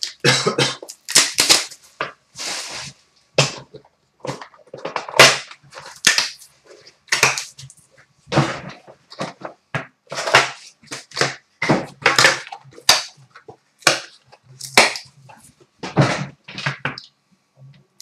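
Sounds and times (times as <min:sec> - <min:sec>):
plastic shrink wrap crinkling: 0:00.0 - 0:03.0
shrink wrap ripping: 0:00.8 - 0:01.8.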